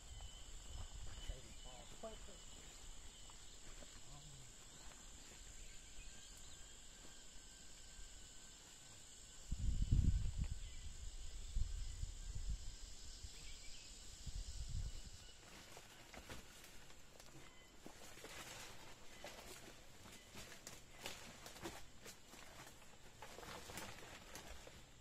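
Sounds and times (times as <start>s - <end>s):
insects chirring: 0.0s - 25.0s.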